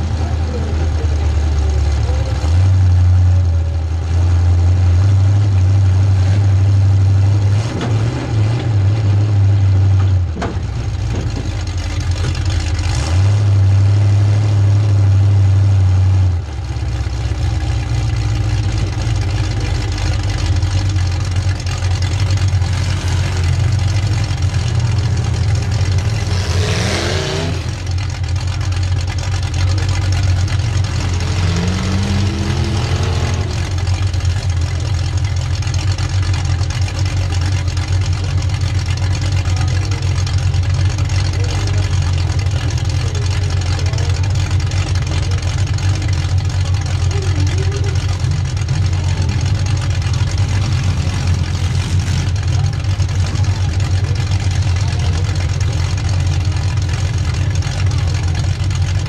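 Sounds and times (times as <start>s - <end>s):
car engine under throttle: 0.0s - 59.0s.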